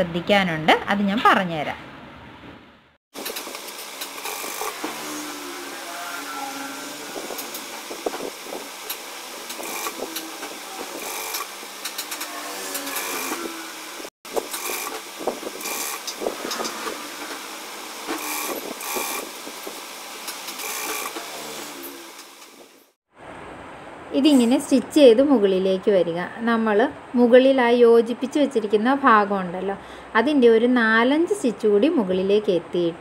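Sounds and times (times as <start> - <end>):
sewing machine running: 3.2 - 5.7, 6.5 - 13.8, 14.4 - 19.4, 20.4 - 22.4.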